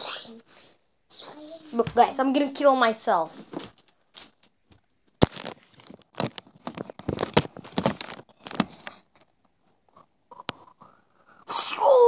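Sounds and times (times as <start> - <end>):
crinkling and rustling: 3.2 - 10.9.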